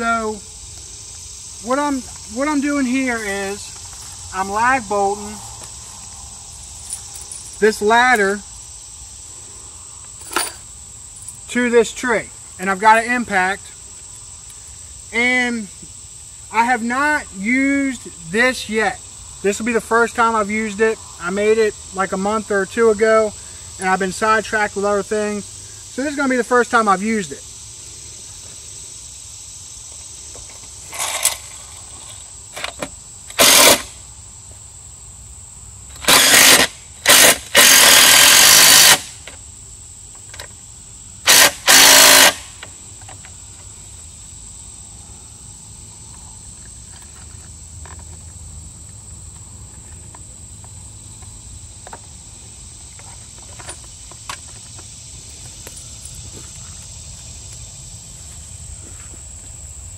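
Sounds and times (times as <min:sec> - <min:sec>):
impact driver bursts: 0:33.3 - 0:34.0, 0:36.0 - 0:39.2, 0:41.2 - 0:42.6.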